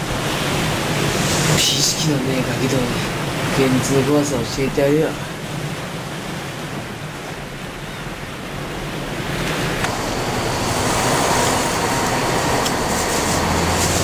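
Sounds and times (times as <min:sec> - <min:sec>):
steady rushing noise: 0:00.0 - 0:14.0
high hiss: 0:09.8 - 0:14.0.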